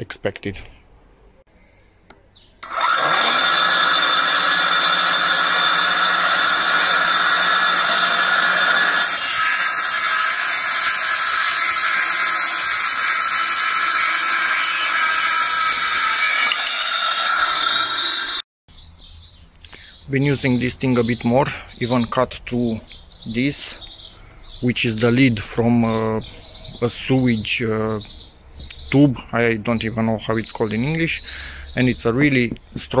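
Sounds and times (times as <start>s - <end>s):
circular saw cutting a board: 2.6s - 18.5s.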